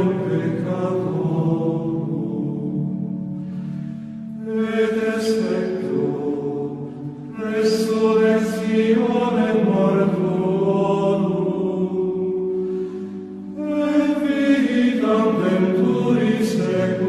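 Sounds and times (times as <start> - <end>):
slow hymn singing: 0.0 - 17.0
singer breath: 3.3 - 4.3.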